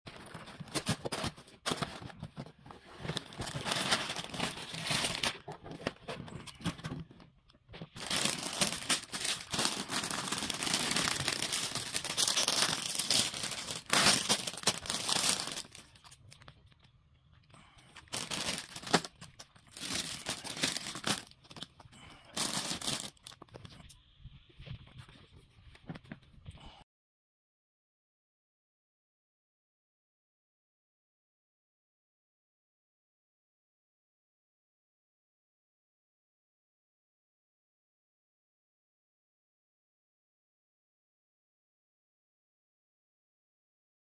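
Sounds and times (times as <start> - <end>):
plastic bags crinkling: 3.0 - 5.6, 8.0 - 16.5, 18.0 - 23.6
cardboard box tearing: 8.0 - 15.8.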